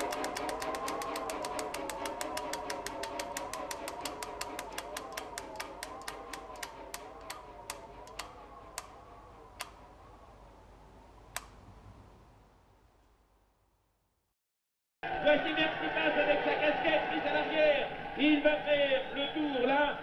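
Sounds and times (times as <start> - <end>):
bicycle freewheel ticking: 0.0 - 8.3
wavering electronic drone: 0.0 - 10.7.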